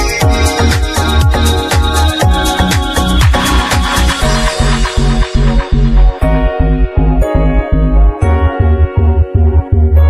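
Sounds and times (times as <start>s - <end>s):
hi-hats: 0.0s - 6.2s
sustained synth chords: 0.0s - 10.0s
kick drum: 0.2s - 7.4s.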